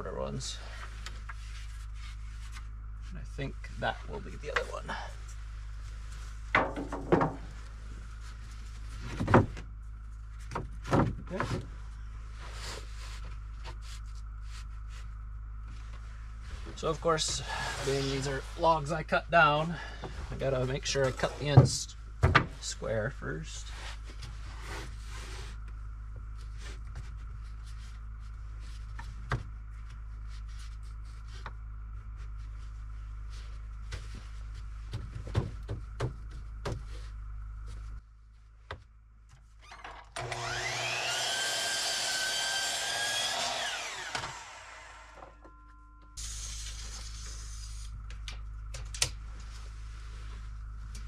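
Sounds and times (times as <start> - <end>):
boards knocking and scraping: 6.5 - 7.6, 34.9 - 37.0
miter saw cutting wood: 40.2 - 45.3.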